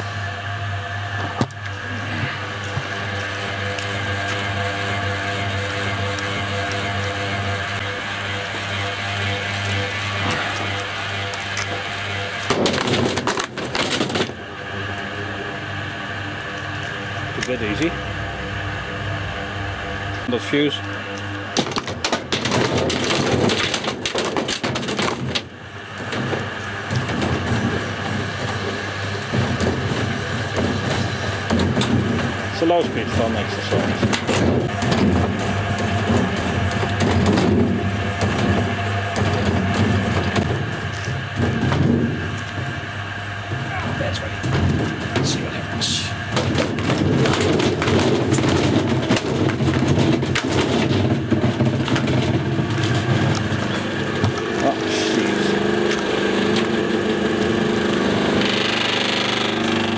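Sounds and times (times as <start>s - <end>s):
low motor hum: 0.0s - 59.9s
debris clattering in washing machine drum: 12.4s - 14.4s, 21.6s - 54.4s.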